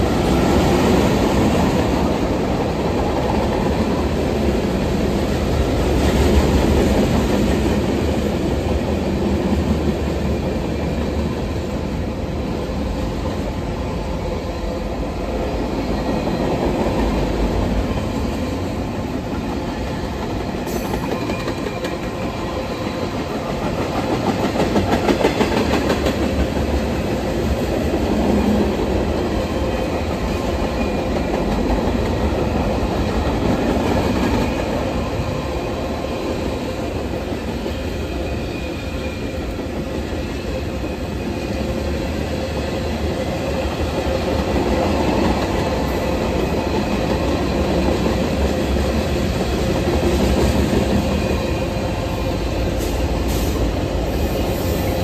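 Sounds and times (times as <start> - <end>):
freight train wheels clattering: 15.7 - 55.0.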